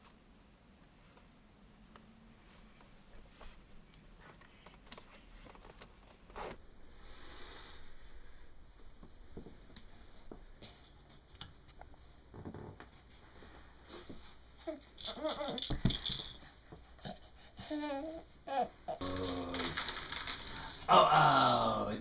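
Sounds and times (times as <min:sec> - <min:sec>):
room hum: 0:00.0 - 0:22.0.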